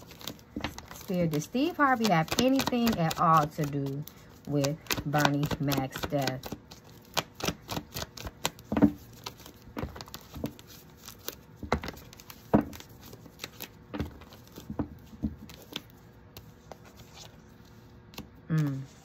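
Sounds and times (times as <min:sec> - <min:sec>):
cards being shuffled by hand: 0:00.0 - 0:19.0.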